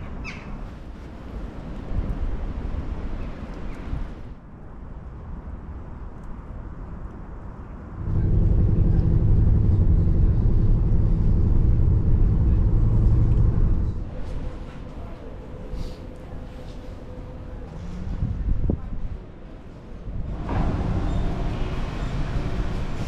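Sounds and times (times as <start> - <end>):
outdoor background noise: 0.0 - 23.0
vehicle engine drone: 7.9 - 18.4, 20.0 - 23.0.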